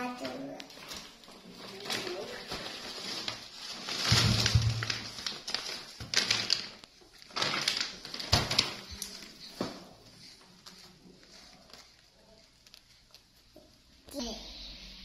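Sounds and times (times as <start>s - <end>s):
plastic bag crinkling: 0.3s - 9.6s.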